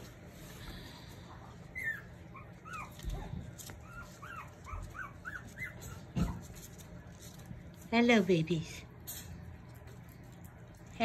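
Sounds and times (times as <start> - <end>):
dog whimpering: 1.4 - 6.5.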